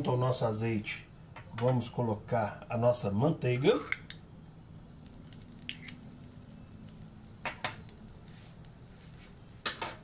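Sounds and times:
low steady hum: 0.0s - 10.0s
butter squishing in oil: 4.6s - 10.0s.

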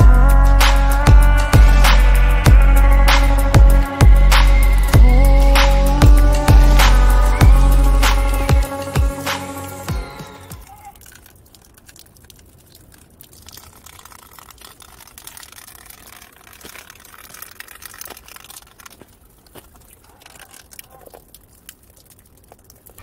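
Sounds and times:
tyres splashing through mud: 0.0s - 23.0s
crackling grit: 10.6s - 23.0s.

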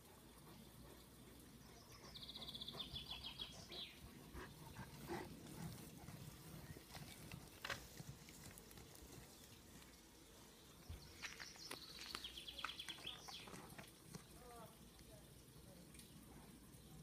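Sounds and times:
dog digging and scratching dirt: 4.5s - 9.9s.

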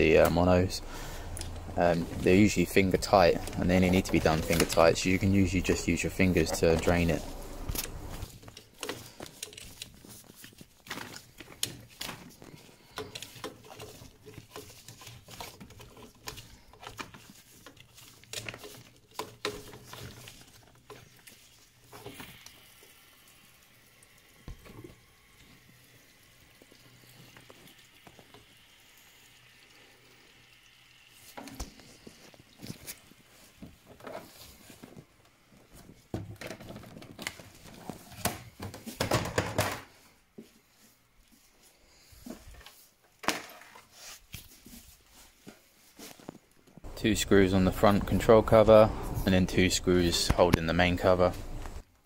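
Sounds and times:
water trickling from hose: 0.0s - 10.4s, 11.2s - 34.7s.

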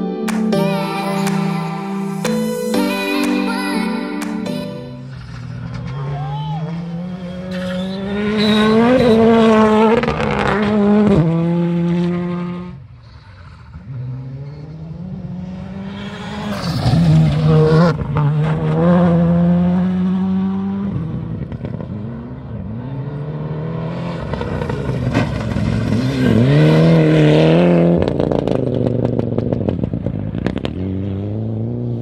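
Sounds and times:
rally car engine at high revs: 5.2s - 32.0s.

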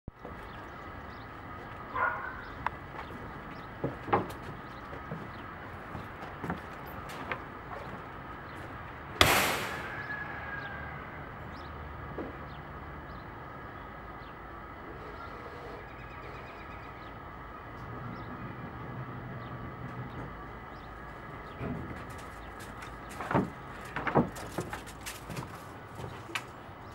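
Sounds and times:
loud ringing bang: 9.2s - 10.2s.

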